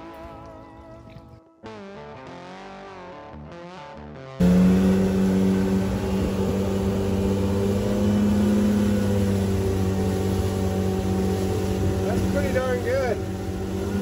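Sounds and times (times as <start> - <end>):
outboard motor running: 4.4 - 14.0.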